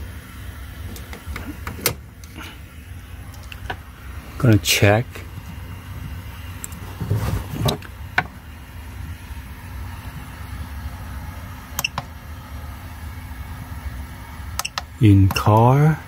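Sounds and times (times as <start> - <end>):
low hum: 0.0 - 16.0
handling noise: 5.2 - 8.4.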